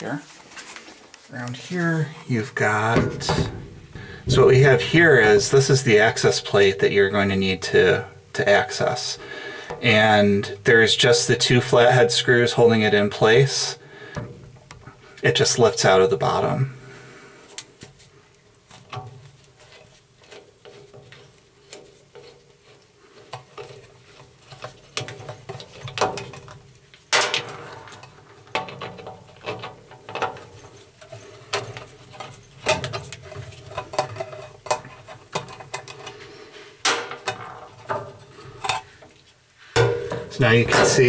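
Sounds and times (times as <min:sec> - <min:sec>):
metal knocks: 0:02.7 - 0:05.8, 0:39.8 - 0:41.0
metal clicks rattles and scrapes: 0:18.8 - 0:36.2.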